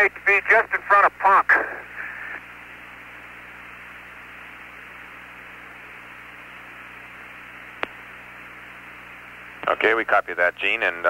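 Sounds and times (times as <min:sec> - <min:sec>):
faint low hum: 0:00.0 - 0:11.0
radio channel hiss: 0:00.0 - 0:11.0.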